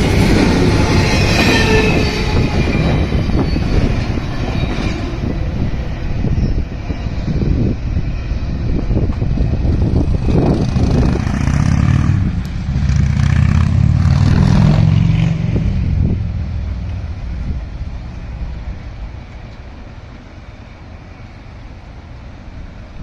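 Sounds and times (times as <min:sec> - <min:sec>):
low traffic rumble: 0:00.0 - 0:23.0
vehicle passing close by: 0:10.1 - 0:18.3.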